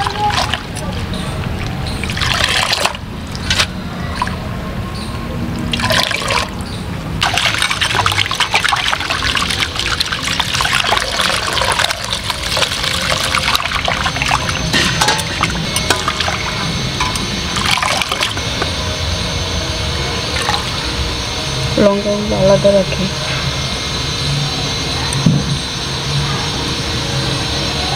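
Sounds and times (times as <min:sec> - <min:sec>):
water pouring into bowl: 0:01.5 - 0:03.6, 0:05.7 - 0:06.6, 0:07.2 - 0:18.4.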